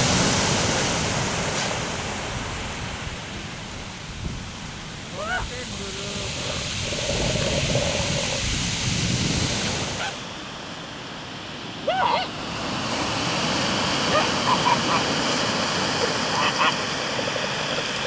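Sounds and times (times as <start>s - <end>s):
surf washing on pebble beach: 0.0s - 18.0s.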